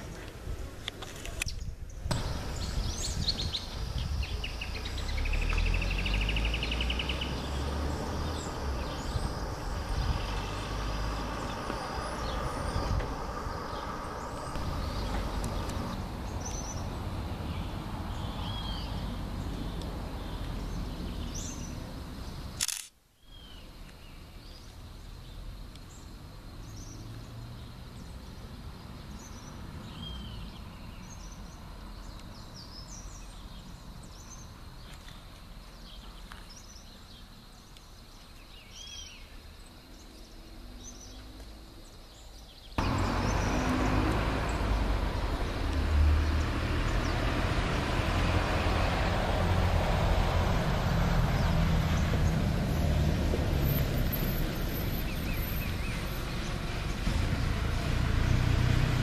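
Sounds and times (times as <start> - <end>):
birds chirping: 0.0 - 59.0
low rumble: 7.5 - 17.4
sharp click: 22.6 - 23.0.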